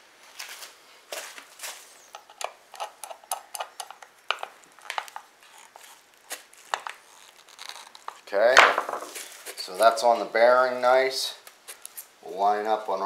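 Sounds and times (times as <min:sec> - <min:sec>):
screwdriver metal clicks and scrapes: 0:02.2 - 0:05.8.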